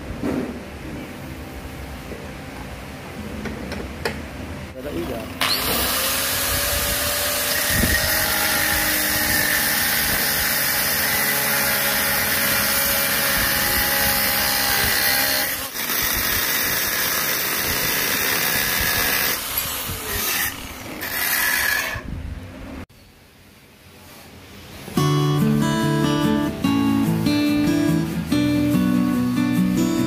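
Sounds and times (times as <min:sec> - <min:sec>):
angle grinder cutting steel: 0:05.4 - 0:22.0.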